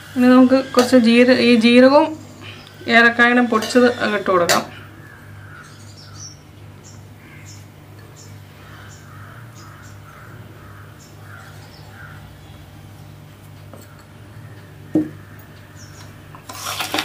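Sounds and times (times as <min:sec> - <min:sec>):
steady low hum: 0:00.0 - 0:16.6
crow cawing: 0:04.7 - 0:06.3, 0:07.2 - 0:07.6, 0:08.5 - 0:12.6, 0:14.6 - 0:15.6.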